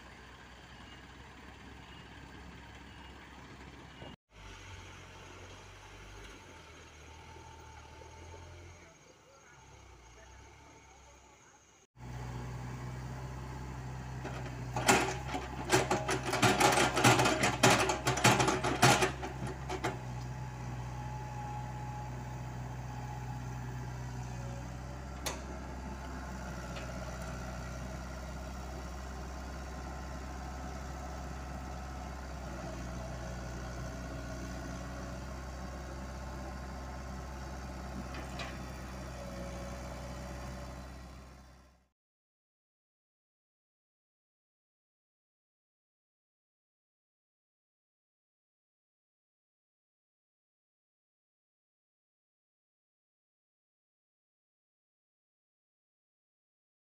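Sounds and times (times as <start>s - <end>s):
excavator diesel engine running: 0.0s - 41.8s.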